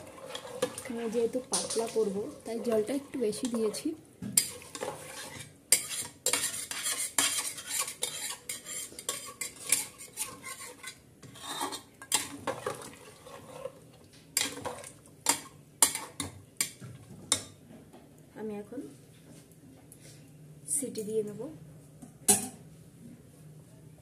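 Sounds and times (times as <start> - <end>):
metal spatula scraping a pot: 0.0 - 13.8.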